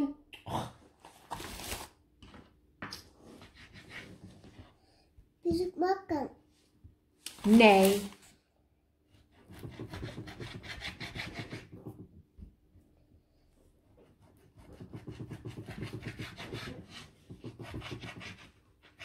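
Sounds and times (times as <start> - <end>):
knife sawing through meat on board: 9.4 - 11.8, 14.3 - 19.0.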